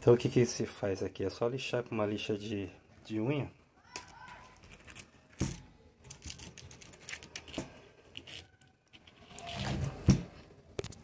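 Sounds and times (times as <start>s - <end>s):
plastic parts clicking and knocking: 3.9s - 11.0s.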